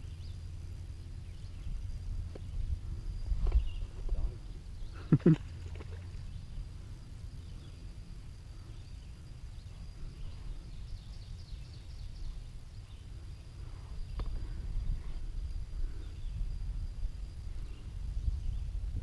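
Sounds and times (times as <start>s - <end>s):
low wind rumble on microphone: 0.0s - 19.0s
faint high bird chirps: 1.1s - 6.6s, 7.4s - 15.0s.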